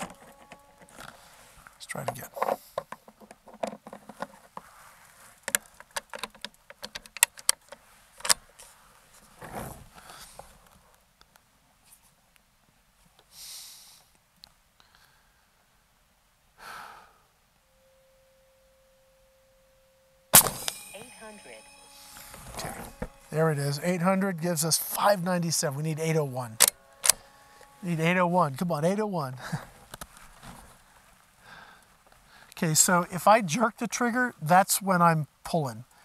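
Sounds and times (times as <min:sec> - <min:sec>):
person breathing: 0:09.9 - 0:10.5, 0:13.3 - 0:14.1, 0:14.8 - 0:15.6, 0:16.6 - 0:17.3, 0:31.4 - 0:32.6
air rifle shot: 0:20.4 - 0:20.9.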